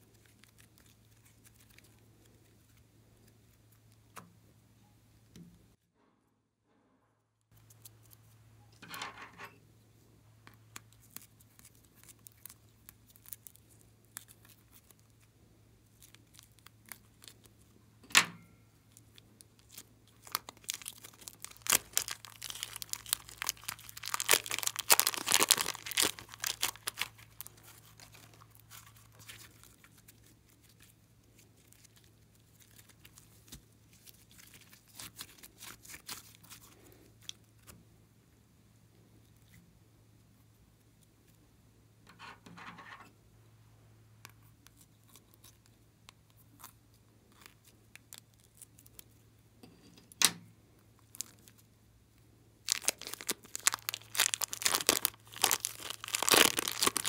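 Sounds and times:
plastic bag crinkling and tearing: 0:00.0 - 0:03.3, 0:10.7 - 0:15.2, 0:18.9 - 0:37.7, 0:51.0 - 0:51.7, 0:52.6 - 0:57.0.

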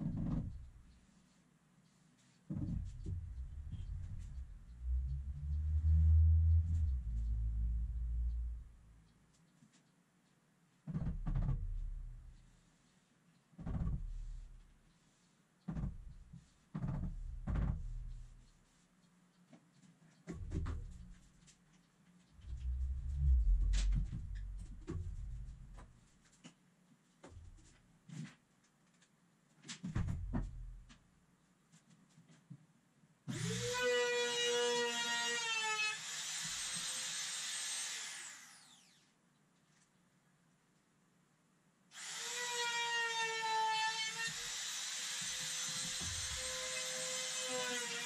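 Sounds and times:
trim router whining: 0:33.3 - 0:39.0, 0:42.0 - 0:48.0
router cutting laminate: 0:33.3 - 0:39.1, 0:42.0 - 0:48.0.

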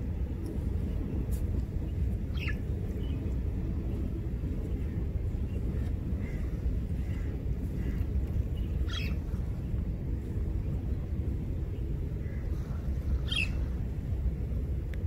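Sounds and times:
wind: 0:00.0 - 0:15.0.

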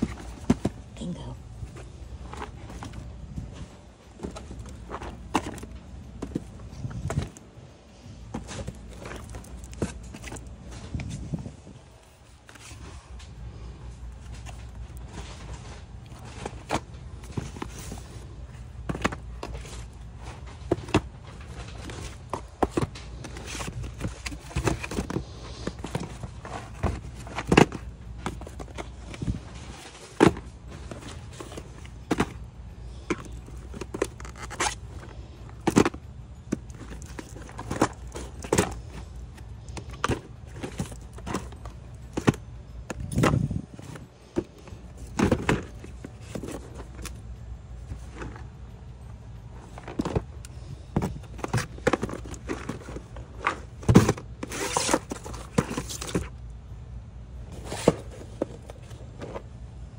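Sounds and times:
low steady hum: 0:00.0 - 0:59.9
cardboard boxes knocking together: 0:50.9 - 0:56.3.

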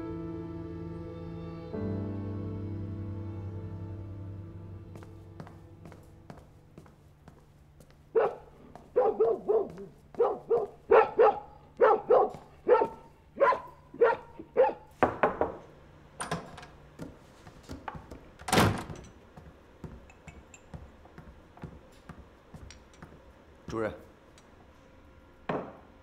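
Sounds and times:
footsteps on wooden floor: 0:04.9 - 0:11.0, 0:11.8 - 0:13.0, 0:16.4 - 0:23.3.

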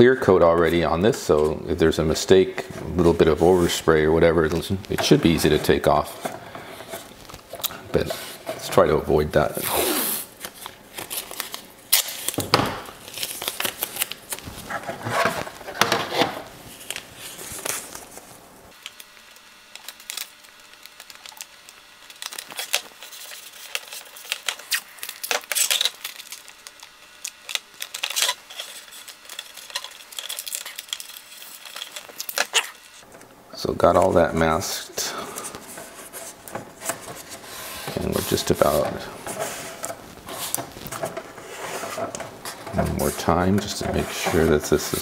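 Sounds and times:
tape rubbing on plastic: 0:02.6 - 0:12.4, 0:13.0 - 0:18.4, 0:22.2 - 0:33.1, 0:35.4 - 0:45.0.

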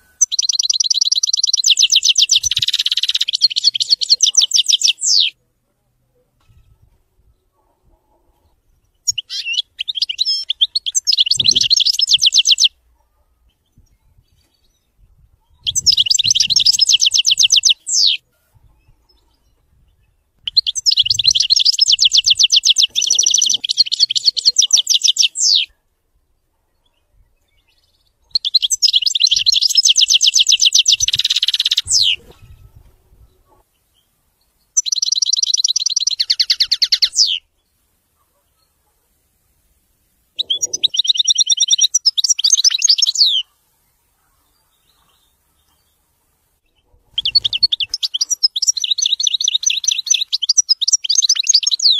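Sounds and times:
goldfinch trilling song: 0:00.0 - 0:05.4, 0:09.0 - 0:12.8, 0:15.6 - 0:18.2, 0:18.8 - 0:25.7, 0:27.6 - 0:33.4, 0:34.8 - 0:37.5, 0:40.4 - 0:43.5, 0:46.7 - 0:51.9.

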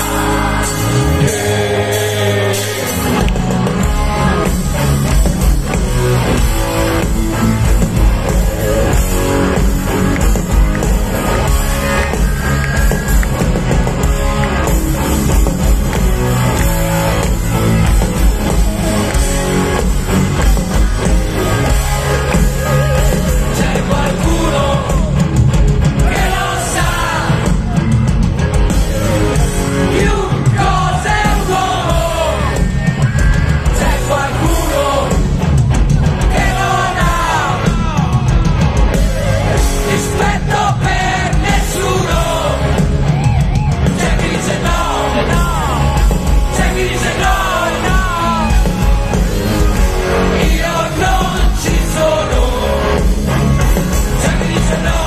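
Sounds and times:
lead vocal singing: 0:00.0 - 0:03.7, 0:21.6 - 0:27.7, 0:29.6 - 0:32.8, 0:33.6 - 0:38.8, 0:39.6 - 0:43.0, 0:43.8 - 0:55.0
rock band playing live: 0:00.0 - 0:55.0.

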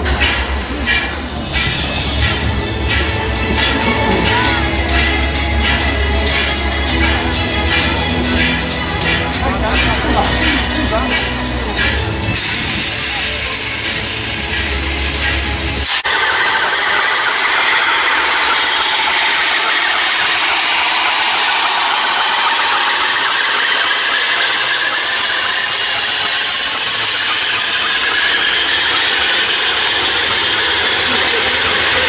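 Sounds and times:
turntable mechanical running: 0:00.0 - 0:32.0.

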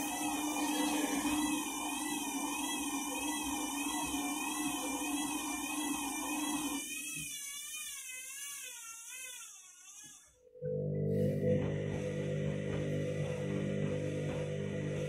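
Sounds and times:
washing machine low hum: 0:00.0 - 0:06.8, 0:10.6 - 0:15.0
washing machine motor whining: 0:00.0 - 0:15.0.

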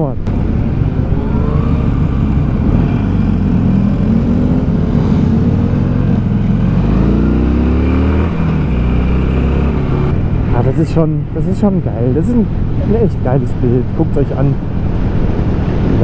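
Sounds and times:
motorcycle engine accelerating: 0:00.3 - 0:11.1.

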